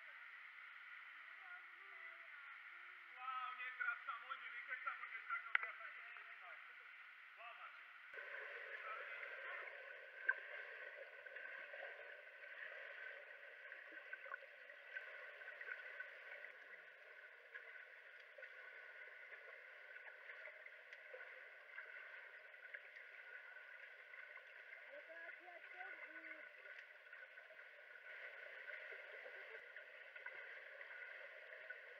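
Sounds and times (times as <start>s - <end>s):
muffled water sloshing and splashing: 8.0s - 31.9s.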